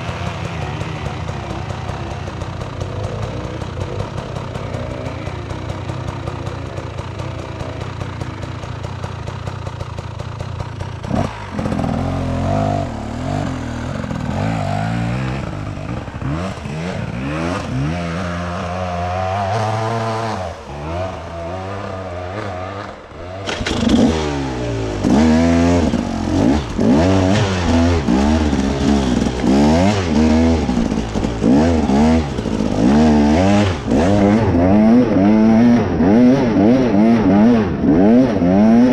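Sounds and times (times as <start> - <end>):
off-road vehicle engine revving: 0.0 - 38.9.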